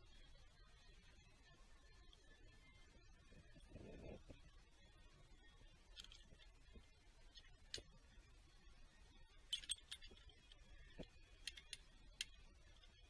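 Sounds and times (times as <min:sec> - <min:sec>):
faint metal clinks and clicks: 0:05.6 - 0:08.2, 0:09.3 - 0:13.0.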